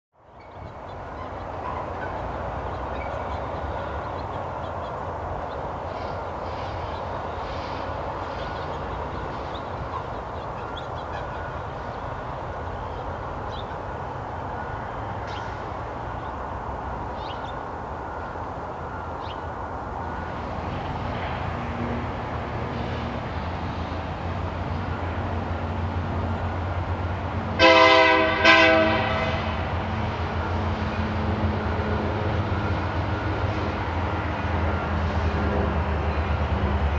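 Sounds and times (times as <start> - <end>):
diesel locomotive engine rumble: 0.2 - 36.9
train air horn blasts: 27.6 - 29.8.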